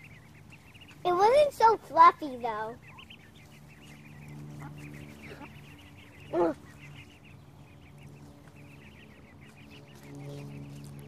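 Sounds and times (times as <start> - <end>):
ducklings peeping: 0.0 - 11.0
wavering duckling call: 2.3 - 7.2.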